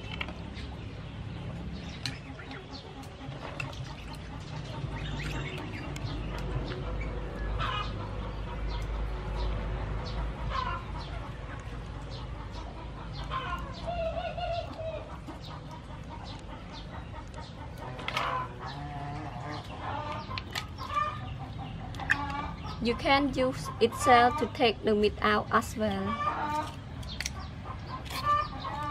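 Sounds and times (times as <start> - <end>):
chickens clucking: 0.0 - 28.9
mussel shells clicking open: 26.5 - 28.3.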